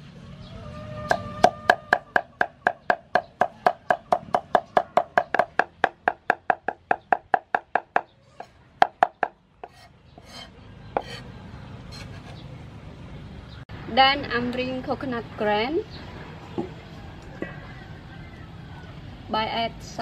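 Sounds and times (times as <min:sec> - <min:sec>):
cleaver chopping on wooden block: 0:01.1 - 0:08.1, 0:08.8 - 0:11.3.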